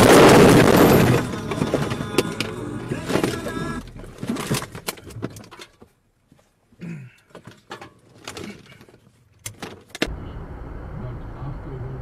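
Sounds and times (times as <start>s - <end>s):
clicks knocks and rattles: 4.1s - 6.0s, 7.2s - 10.1s
car driving low rumble: 10.1s - 12.0s.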